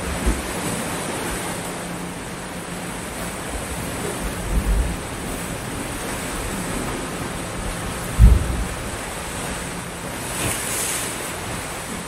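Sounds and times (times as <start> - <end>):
sea surf washing on beach: 0.0 - 12.0
wind on microphone: 3.5 - 12.0
low thump: 8.1 - 8.8.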